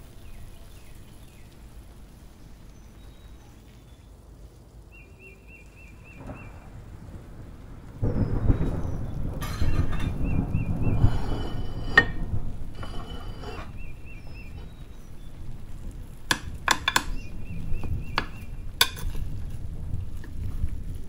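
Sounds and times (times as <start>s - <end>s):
rushing noise: 8.1s - 14.8s
metal spatula clinking on glass dish: 18.8s - 19.2s.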